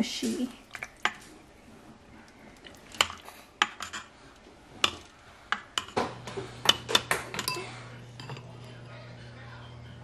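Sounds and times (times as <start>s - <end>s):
low steady hum: 0.0s - 10.0s.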